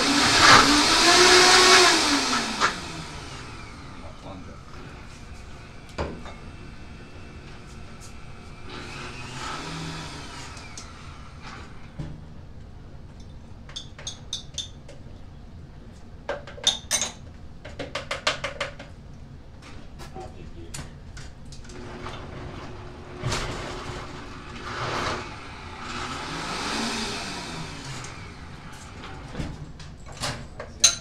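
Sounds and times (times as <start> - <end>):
dishes and utensils clinking: 30.6 - 31.0.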